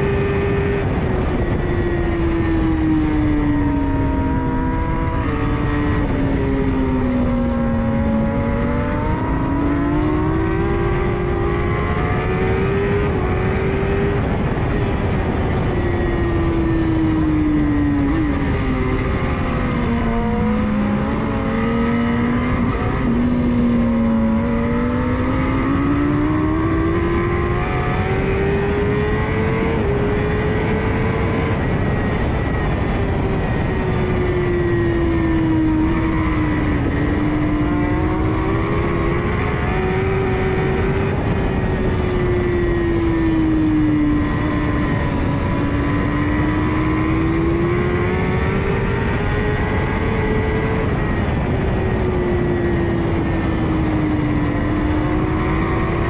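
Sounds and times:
motorcycle engine at high revs: 0:00.0 - 0:56.0
wind rush: 0:00.0 - 0:56.0.

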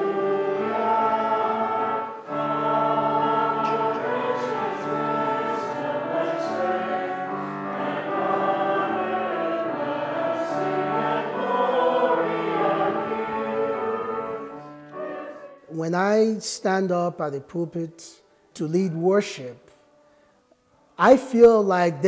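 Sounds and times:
choir singing held chords: 0:00.0 - 0:16.5.

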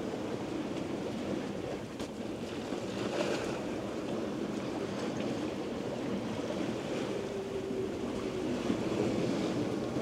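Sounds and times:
waves rushing along hull: 0:00.0 - 0:10.0
wind buffeting microphone: 0:03.1 - 0:10.0.

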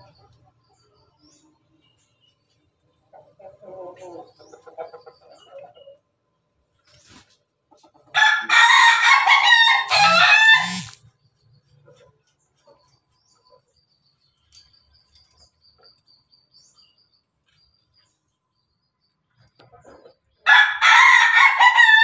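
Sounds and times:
rooster crowing: 0:08.2 - 0:11.0, 0:20.4 - 0:22.0.

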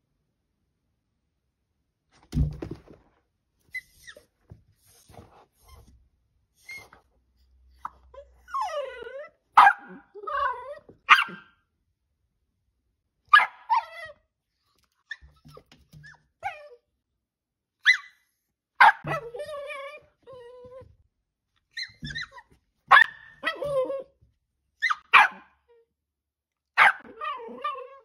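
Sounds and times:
dog whining: 0:06.6 - 0:07.1, 0:07.7 - 0:09.4, 0:10.0 - 0:11.3, 0:19.0 - 0:20.9, 0:21.7 - 0:24.1, 0:26.9 - 0:28.0
dog barking: 0:09.6 - 0:10.1, 0:11.1 - 0:11.6, 0:13.3 - 0:13.9, 0:18.8 - 0:19.3, 0:22.9 - 0:23.7, 0:24.8 - 0:25.6, 0:26.8 - 0:27.2.

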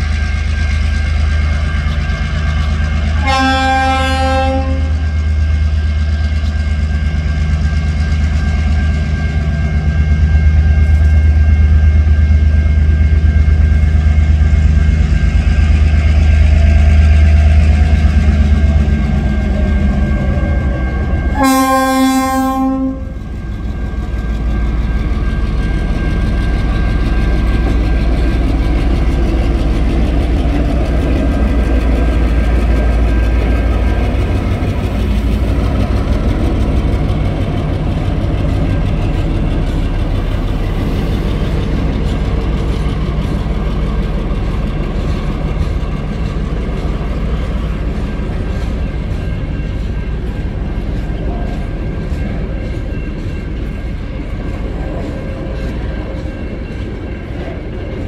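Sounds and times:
locomotive horn blast: 0:03.1 - 0:05.0, 0:21.1 - 0:23.2.

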